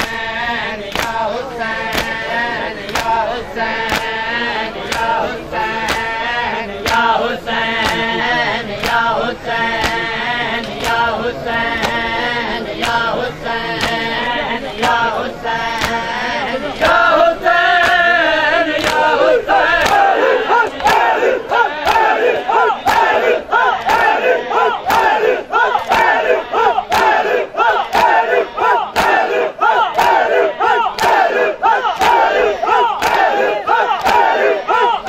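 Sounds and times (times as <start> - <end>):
men chanting in chorus: 0.0 - 35.0
chest-beating slaps: 0.9 - 1.2, 2.8 - 3.2, 3.8 - 4.2, 4.8 - 5.2, 5.8 - 6.2, 6.8 - 7.2, 8.8 - 9.1, 9.7 - 11.1, 13.8 - 14.1, 15.7 - 16.1, 17.8 - 18.1, 18.8 - 19.2, 19.8 - 35.0.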